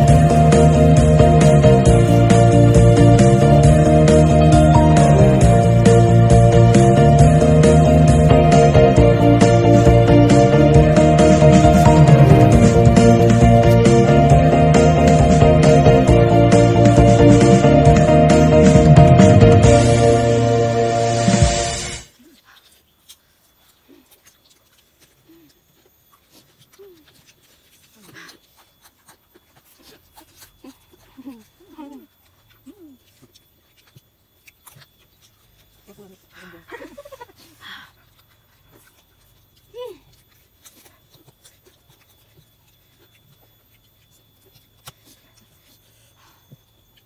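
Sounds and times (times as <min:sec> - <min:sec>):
chewing and slurping: 0:21.8 - 0:47.0.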